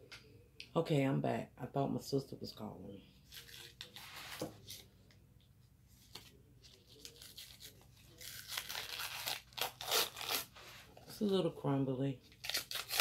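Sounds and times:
cardboard box tearing: 8.2 - 10.5, 12.4 - 13.0.

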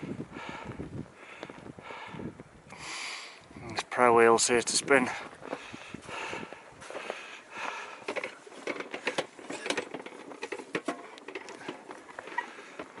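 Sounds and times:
metal prayer wheels clattering: 5.1 - 13.0.

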